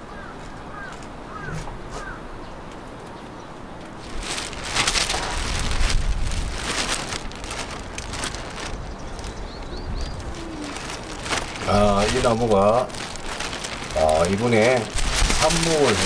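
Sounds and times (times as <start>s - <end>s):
plastic sheeting crackling: 4.0s - 16.0s
wind rumble on microphone: 4.0s - 16.0s
bird chirps: 8.8s - 10.9s.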